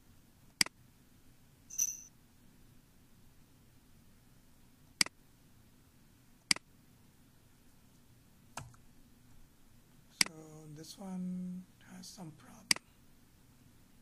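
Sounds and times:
faint room hum: 0.0 - 14.0
computer mouse clicks: 0.5 - 0.8.

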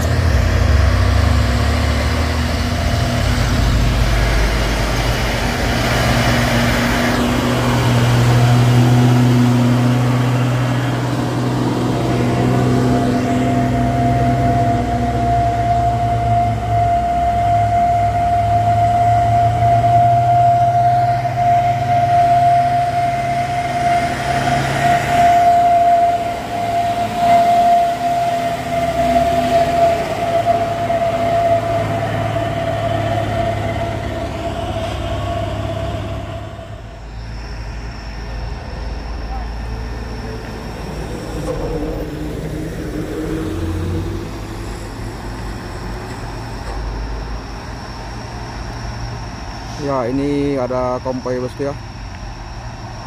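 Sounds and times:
truck engine labouring: 0.0 - 53.0.

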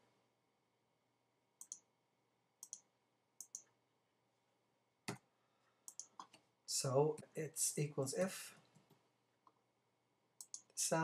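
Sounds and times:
computer mouse clicks: 1.6 - 1.9, 2.6 - 3.7, 5.9 - 6.4, 10.4 - 10.8.

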